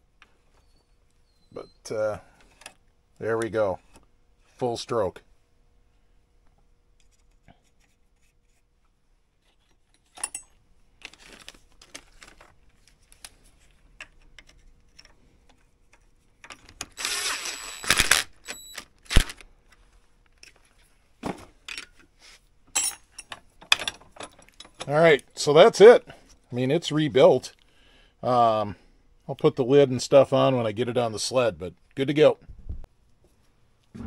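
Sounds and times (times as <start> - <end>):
metal tools clinking on workbench: 10.0 - 10.6, 22.7 - 24.9.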